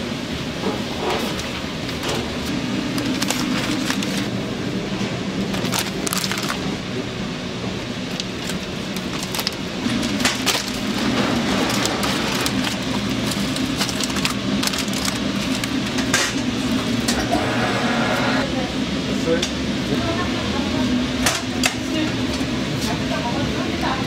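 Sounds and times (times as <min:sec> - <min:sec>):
steady low hum: 0:00.0 - 0:21.2
plastic bag crinkling: 0:02.8 - 0:04.4, 0:05.4 - 0:06.8, 0:08.0 - 0:16.1.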